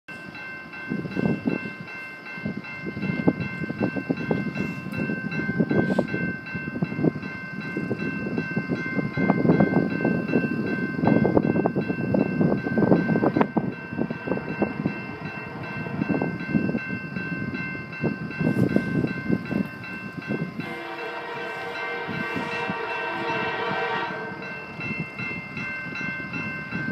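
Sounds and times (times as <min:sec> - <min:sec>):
level crossing bell ringing: 0:00.4 - 0:26.9
wind on microphone: 0:00.9 - 0:26.9
locomotive air horn: 0:20.6 - 0:24.7.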